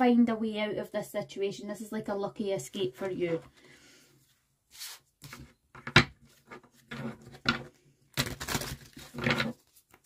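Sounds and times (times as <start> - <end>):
cards shuffling and slapping: 8.1 - 10.0.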